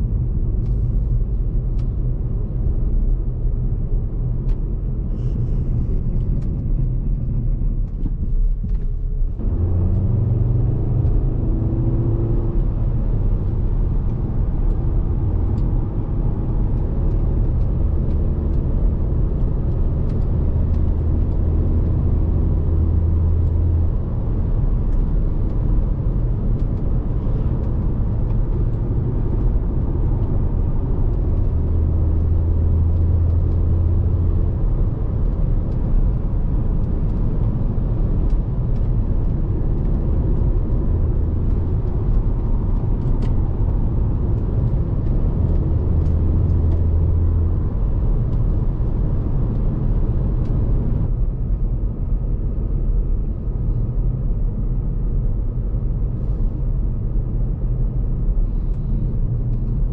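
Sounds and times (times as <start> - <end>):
tyre and road noise: 0.0 - 54.2
car engine cruising drone: 0.0 - 59.9.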